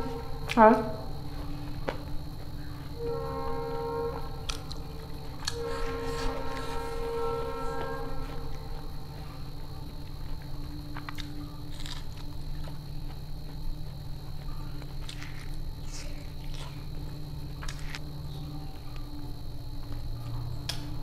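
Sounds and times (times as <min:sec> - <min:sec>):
low hum: 0:00.0 - 0:21.0
fingers picking through food: 0:04.4 - 0:06.7, 0:10.9 - 0:12.8, 0:14.4 - 0:18.1.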